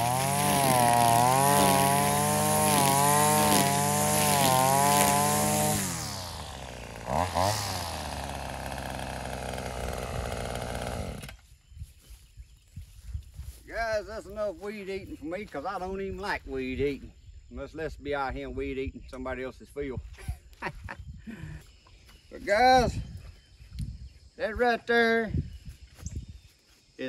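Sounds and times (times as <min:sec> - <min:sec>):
string trimmer cutting grass: 0:00.0 - 0:11.6.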